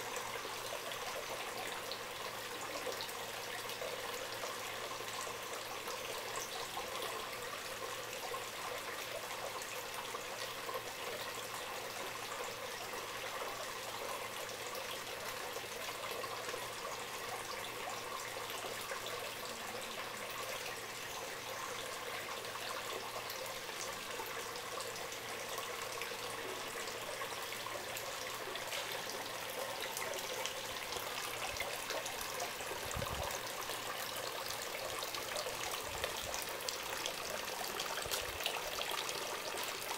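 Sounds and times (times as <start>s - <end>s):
water trickling onto rock: 35.2s - 39.9s.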